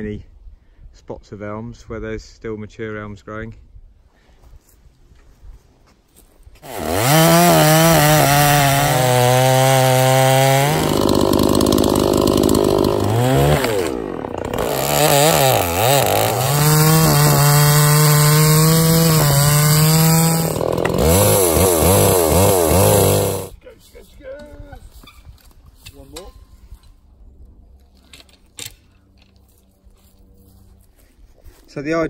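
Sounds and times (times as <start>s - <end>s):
chainsaw cutting log: 6.6s - 23.6s.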